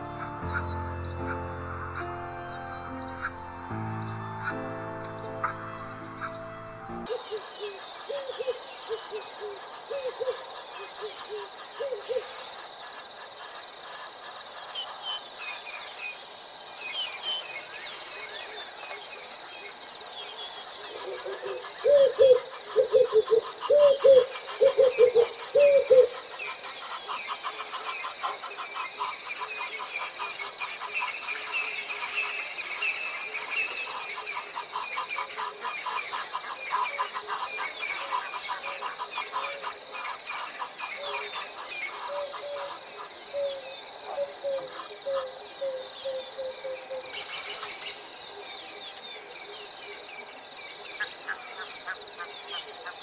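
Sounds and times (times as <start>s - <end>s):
bird calls: 0.0s - 13.6s, 20.7s - 48.1s
insects: 0.0s - 53.0s.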